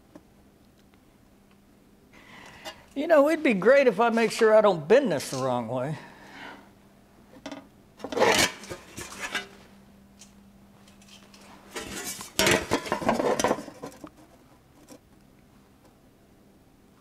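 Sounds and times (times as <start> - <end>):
steel panel scraping and clanking: 8.0 - 9.6, 11.7 - 14.1.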